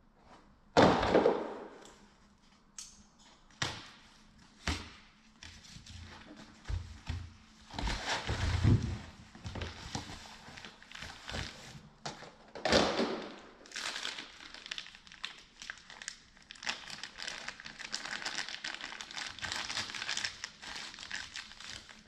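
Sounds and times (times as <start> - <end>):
plastic packaging crinkling: 13.6 - 22.0.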